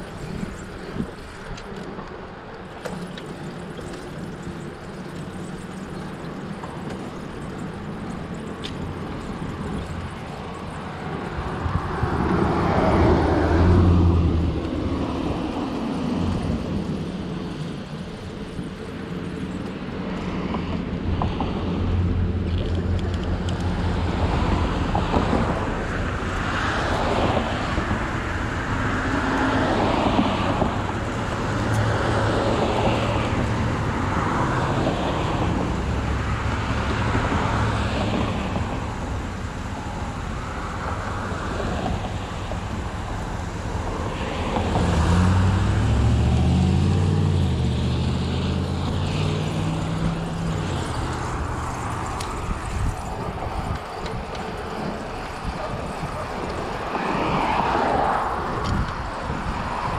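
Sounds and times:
tyre and wind noise: 0.0 - 59.9
vehicles passing: 0.0 - 59.9
engine accelerating: 35.2 - 54.0.

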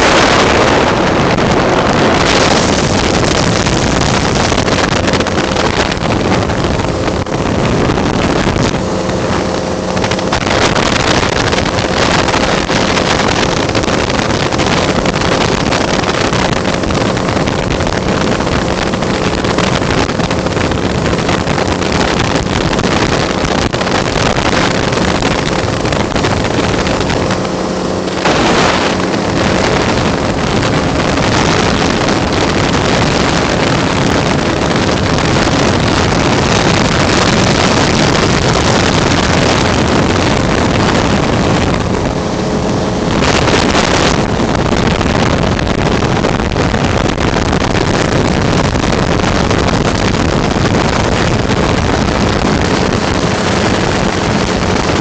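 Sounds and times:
aircraft engine drone: 0.0 - 55.0
wind rush on microphone: 0.0 - 55.0.

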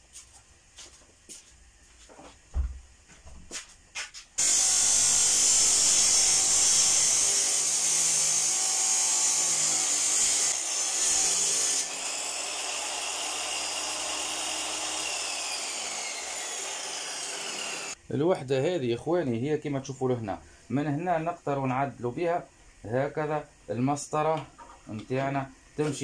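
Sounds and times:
saw grinding through metal: 4.4 - 18.0
saw motor whine: 4.4 - 18.0.

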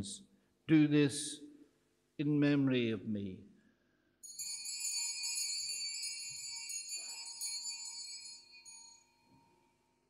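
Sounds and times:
small bells jingling: 4.2 - 10.0.

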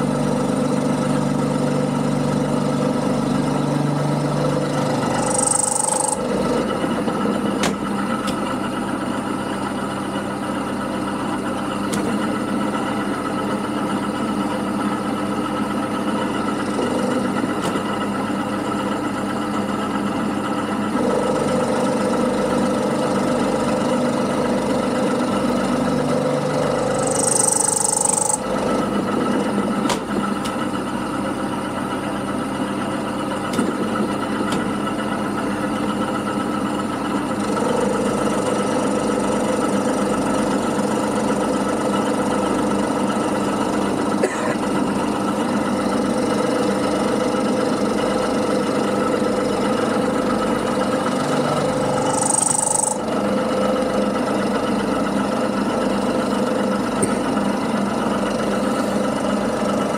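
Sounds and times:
end mill cutting metal: 0.0 - 7.7, 21.0 - 29.8, 48.6 - 54.6
milling machine motor hum: 0.0 - 59.9.

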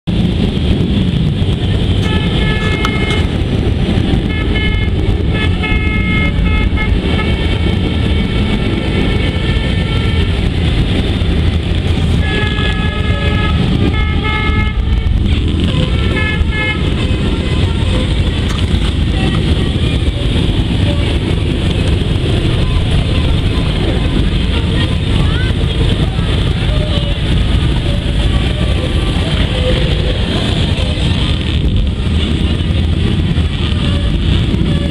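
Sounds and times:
motorcycle engines rumbling: 0.0 - 34.9
horn blasts: 1.9 - 11.0, 12.0 - 21.8, 32.2 - 34.9.

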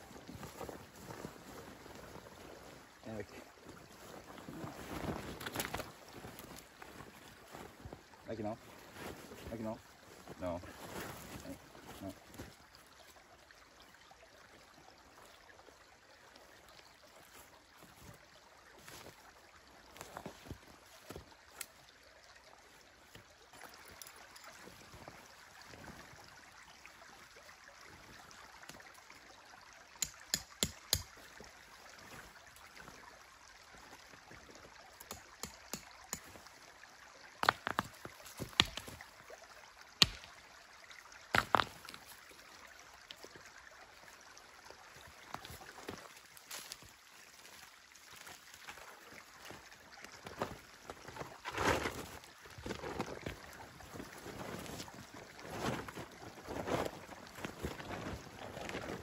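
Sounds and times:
stream trickling: 0.0 - 59.0
tent pitching clicks and knocks: 4.0 - 8.0, 37.4 - 39.0, 50.2 - 59.0.

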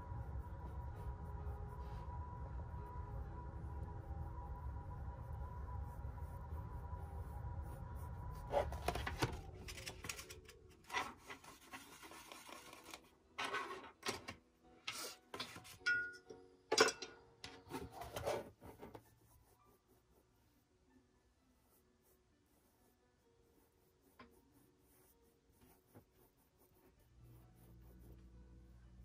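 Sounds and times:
paintbrush scrubbing on canvas: 21.6 - 28.4.

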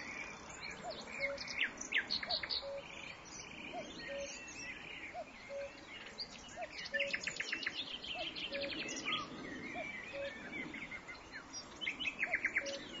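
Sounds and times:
nightingale singing: 0.0 - 13.0
cuckoo calling: 2.2 - 2.9, 3.7 - 5.8, 8.2 - 10.4, 12.2 - 13.0.

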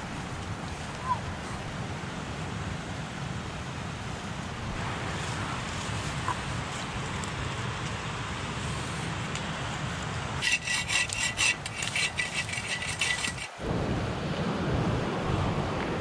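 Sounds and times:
wind-like background noise: 0.0 - 16.0
bow saw cutting branch: 10.4 - 13.6.

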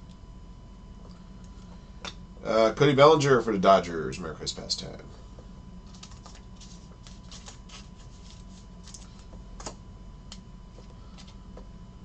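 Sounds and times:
cards being flipped through: 5.8 - 9.8.

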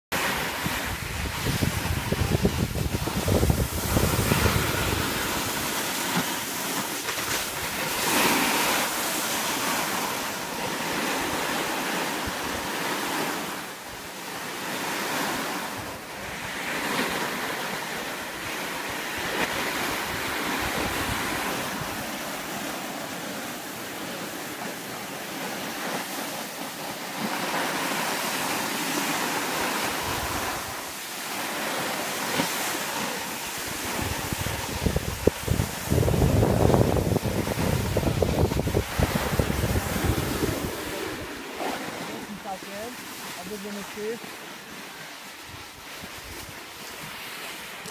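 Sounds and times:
wind on microphone: 0.2 - 14.1, 14.8 - 24.4, 27.2 - 44.1, 45.4 - 47.9
hiss of sliding over snow: 1.0 - 10.4.

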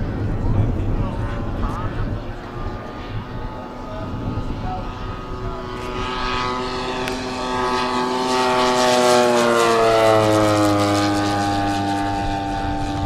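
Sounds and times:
model plane flying past: 0.0 - 13.0.

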